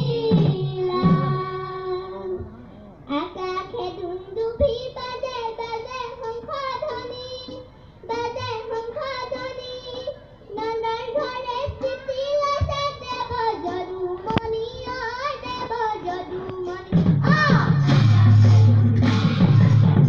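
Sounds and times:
drums and instruments playing: 0.0s - 2.6s, 8.1s - 20.0s
children singing in unison: 0.0s - 20.0s.

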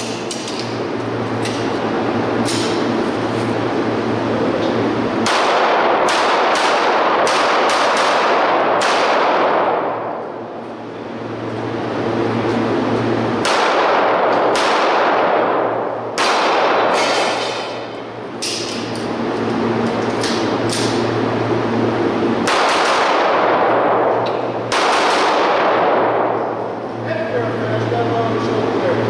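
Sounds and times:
echoing handgun shots indoors: 5.2s - 10.5s, 13.4s - 19.0s, 22.4s - 26.8s.

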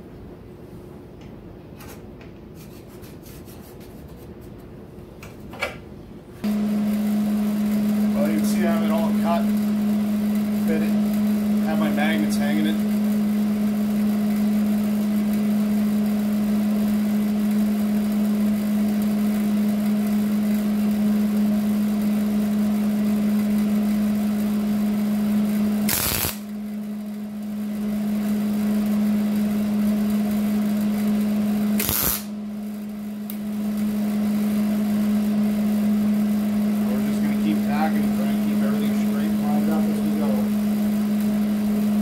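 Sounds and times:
welder buzzing: 6.4s - 21.0s, 25.6s - 26.6s, 27.7s - 42.0s.

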